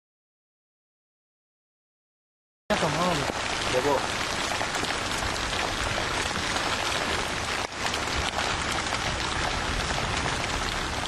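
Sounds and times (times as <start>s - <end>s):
heavy rain falling: 2.7s - 11.0s.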